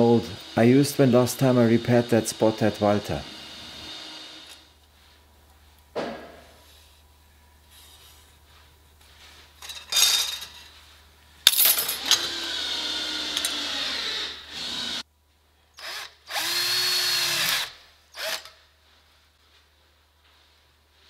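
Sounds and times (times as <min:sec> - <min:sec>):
cordless drill drilling steel: 0:00.0 - 0:04.7, 0:12.0 - 0:15.0, 0:15.8 - 0:18.6.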